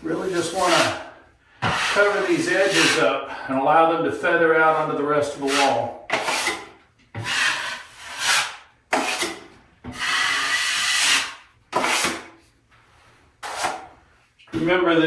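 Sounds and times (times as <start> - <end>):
drywall knife scraping drywall: 0.0 - 3.2, 4.7 - 12.4, 13.4 - 14.0
knife scraping mud pan: 0.2 - 3.0, 5.4 - 12.2, 13.4 - 13.9.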